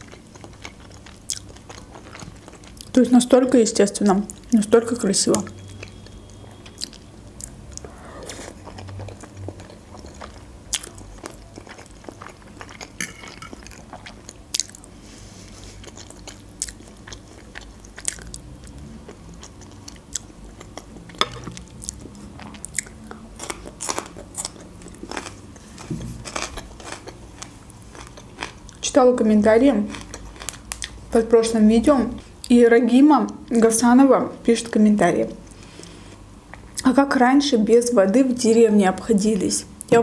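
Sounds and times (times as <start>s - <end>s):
person chewing food: 0.0s - 3.0s, 5.4s - 28.8s, 29.8s - 31.0s.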